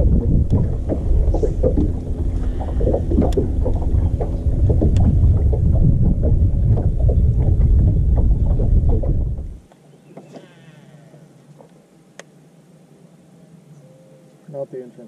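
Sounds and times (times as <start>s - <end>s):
wind rumble on microphone: 0.0s - 9.7s.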